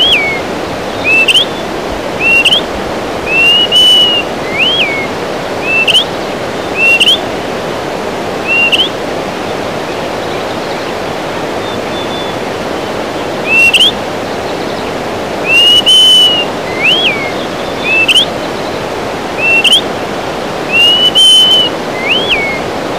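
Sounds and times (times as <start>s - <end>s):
bird whistling: 0.0s - 1.6s, 2.2s - 2.7s, 3.3s - 6.1s, 6.7s - 7.3s, 8.4s - 9.0s, 13.4s - 14.0s, 15.4s - 18.7s, 19.4s - 19.9s, 20.7s - 22.6s.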